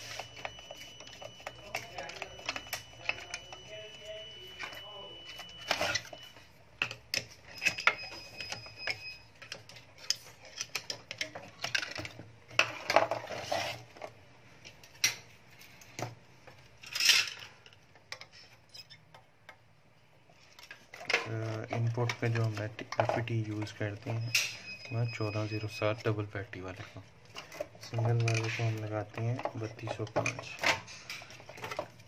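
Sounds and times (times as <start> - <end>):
tools and metal parts clinking: 6.8 - 13.6, 16.8 - 19.0, 27.3 - 32.0.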